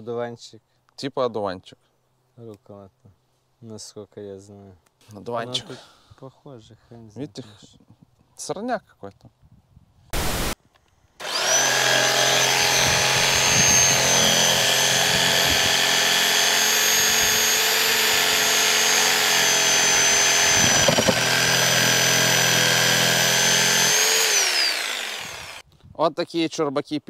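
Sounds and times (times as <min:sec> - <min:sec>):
power saw cutting branches: 0:11.2 - 0:25.6.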